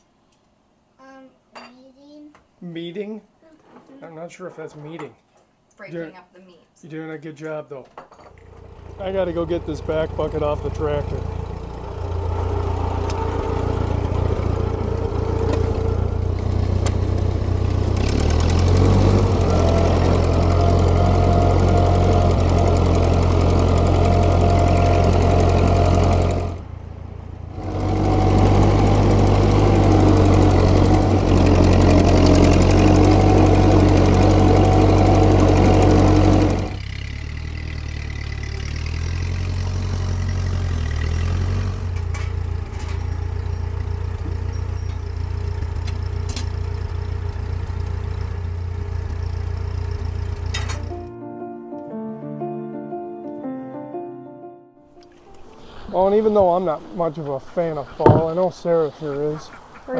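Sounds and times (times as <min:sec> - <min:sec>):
tractor engine running: 0:08.4 - 0:51.1, 0:55.2 - 0:59.8.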